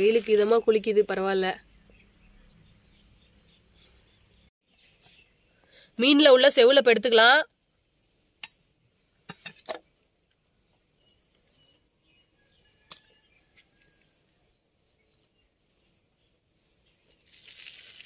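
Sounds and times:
faint bird chirps: 10.3s - 17.0s.

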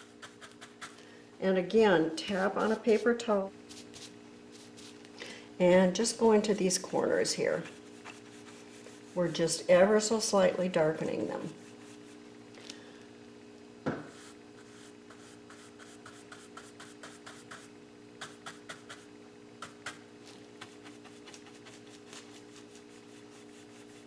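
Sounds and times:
steady low hum: 0.0s - 24.0s
paintbrush scrubbing on canvas: 2.3s - 5.0s, 7.5s - 10.2s, 11.2s - 12.2s, 14.1s - 19.0s, 19.6s - 24.0s.

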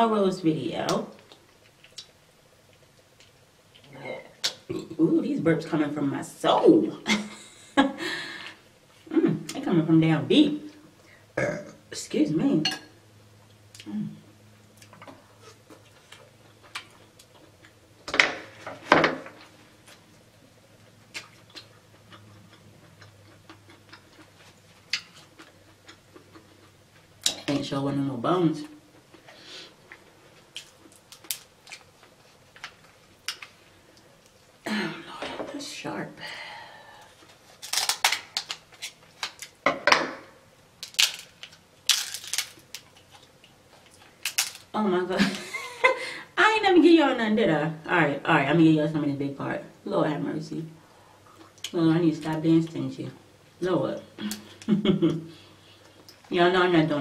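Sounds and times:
scissors cracking crab shell: 40.8s - 42.8s.

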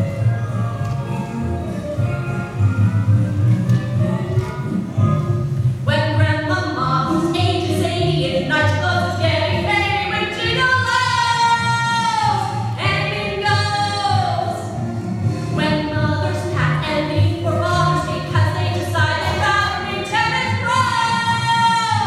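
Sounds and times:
instrumental backing: 0.0s - 22.0s
women singing a show tune: 5.9s - 14.7s, 15.6s - 22.0s.

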